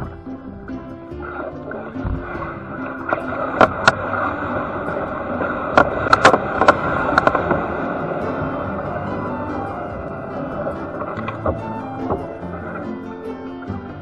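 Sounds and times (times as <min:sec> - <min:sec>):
reeds scraping along kayak hull: 0:00.0 - 0:14.0
reeds clicking and snapping: 0:03.1 - 0:04.5, 0:05.4 - 0:07.6, 0:11.0 - 0:12.3.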